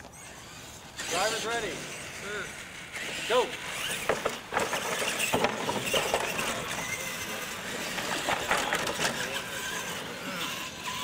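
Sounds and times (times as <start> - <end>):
radio-controlled trucks accelerating: 0.0 - 11.0
tyre noise: 3.0 - 11.0.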